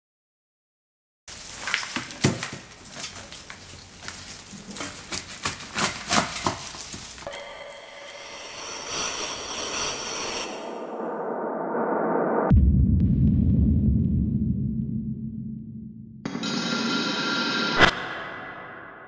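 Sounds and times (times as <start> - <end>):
rustling and crackling stems: 1.3 - 7.3
shimmering drone with ringing tones: 7.3 - 10.9.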